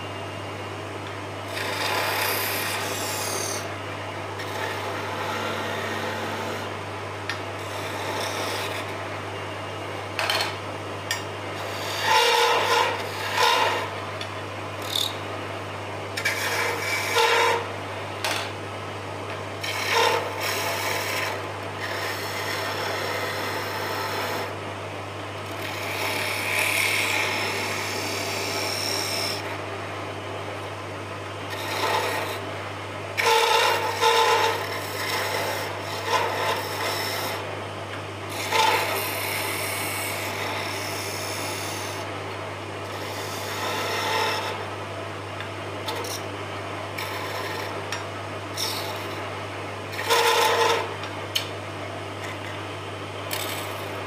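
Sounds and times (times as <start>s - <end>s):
lathe humming: 0.0s - 24.7s, 25.4s - 37.6s, 38.3s - 51.5s, 52.2s - 54.0s
turning tools cutting wood: 1.5s - 3.7s, 4.4s - 6.7s, 7.6s - 9.0s, 11.6s - 13.9s, 16.2s - 17.7s, 19.6s - 24.5s, 25.5s - 29.6s, 31.5s - 32.4s, 33.2s - 37.5s, 38.3s - 42.1s, 42.9s - 44.7s, 47.0s - 48.0s, 48.6s - 49.2s, 49.9s - 51.5s, 53.3s - 54.0s.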